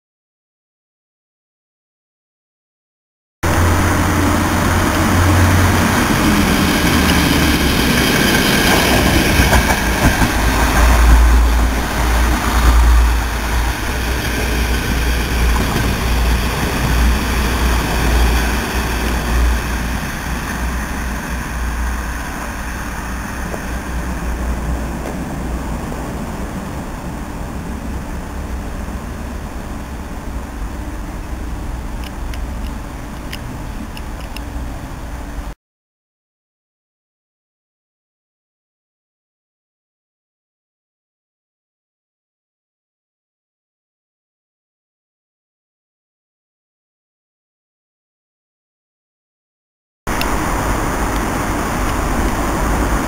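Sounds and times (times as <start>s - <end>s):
rail noise: 3.4s - 35.6s, 50.1s - 53.0s
train passing on tracks: 3.4s - 35.6s, 50.1s - 53.0s.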